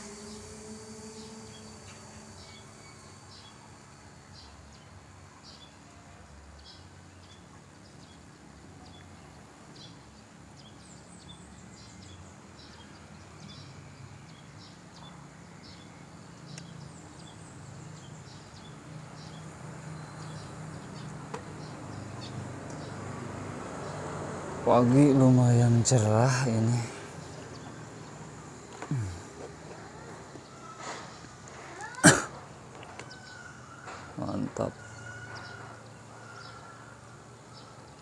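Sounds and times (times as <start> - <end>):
low hum: 0.0 - 5.4
faint background noise: 0.0 - 38.0.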